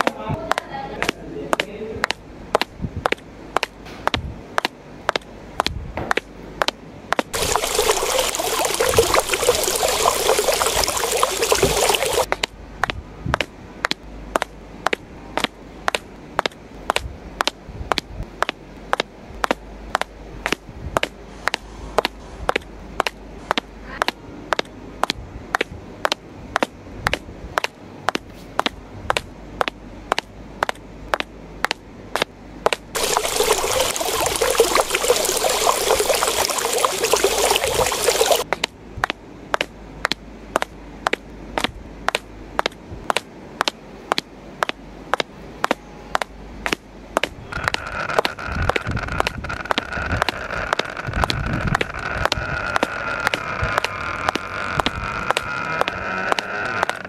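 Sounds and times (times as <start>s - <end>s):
water pouring onto sand: 7.3s - 12.3s, 33.0s - 38.4s.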